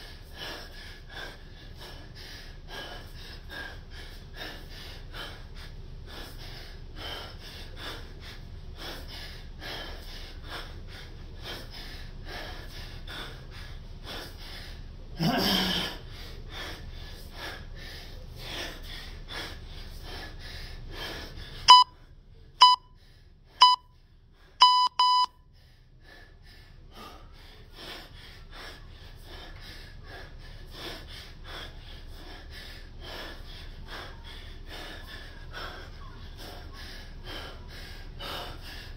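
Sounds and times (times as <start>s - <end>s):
man breathing hard: 0.0s - 38.9s
electronic timer beeps: 21.7s - 21.9s, 22.6s - 22.9s, 23.6s - 23.8s, 24.6s - 25.3s.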